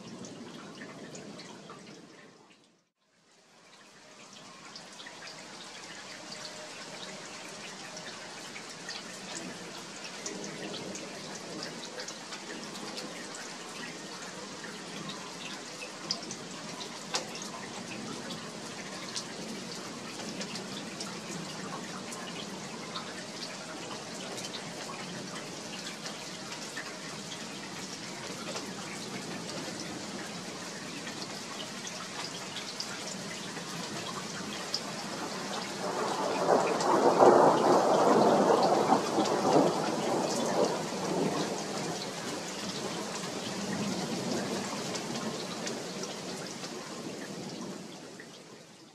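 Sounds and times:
steady rain falling: 0:00.0 - 0:48.9
thunder rumble: 0:35.5 - 0:42.0.

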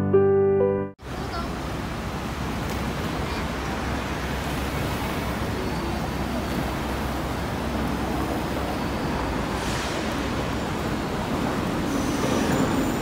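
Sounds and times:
bus engine idling: 0:01.0 - 0:13.0
street traffic: 0:01.0 - 0:13.0.

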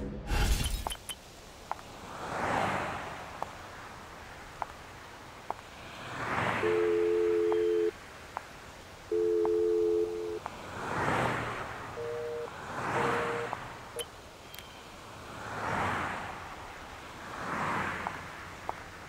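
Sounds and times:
cars passing: 0:00.8 - 0:19.0
high beep: 0:06.6 - 0:07.9, 0:09.1 - 0:10.4, 0:12.0 - 0:14.8
telephone ringing tone: 0:06.6 - 0:08.0, 0:09.1 - 0:10.4, 0:12.0 - 0:14.8.

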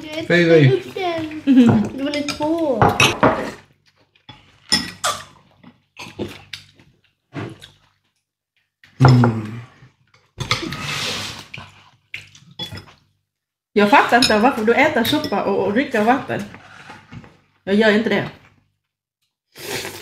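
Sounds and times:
slurping noodle soup: 0:10.5 - 0:12.5, 0:19.5 - 0:20.0.

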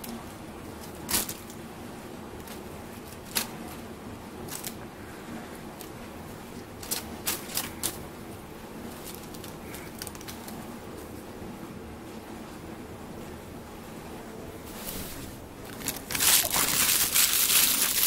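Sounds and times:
plastic bag crinkling: 0:08.9 - 0:10.6, 0:15.6 - 0:18.0.

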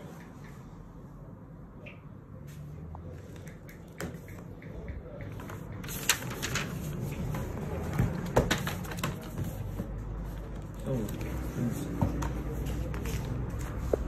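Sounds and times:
paper pages being turned: 0:05.8 - 0:07.9.

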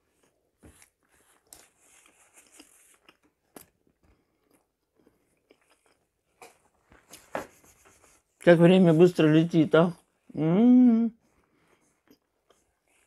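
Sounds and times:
person chewing: 0:00.0 - 0:07.2, 0:11.2 - 0:13.0.

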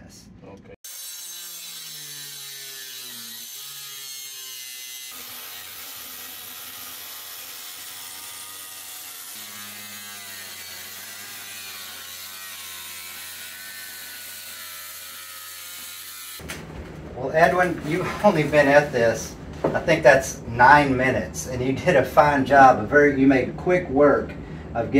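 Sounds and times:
angle grinder cutting metal: 0:00.8 - 0:16.4.

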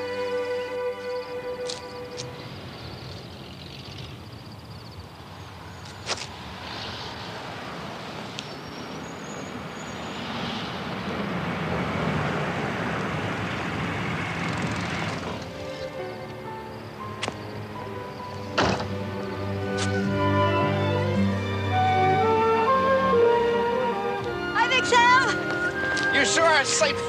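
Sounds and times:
pickup truck pulling away: 0:08.7 - 0:24.5.

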